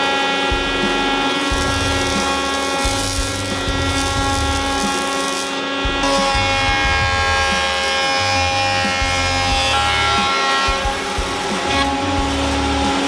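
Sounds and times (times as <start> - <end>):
jointer high whine: 0.0 - 13.0
low rumbles from cutting wood: 0.0 - 13.0.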